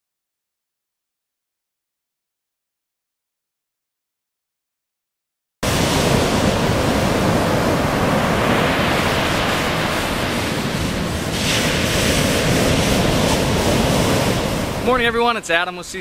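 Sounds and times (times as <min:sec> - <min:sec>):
ocean surf breaking: 0:05.6 - 0:16.0
wind on microphone: 0:05.6 - 0:16.0.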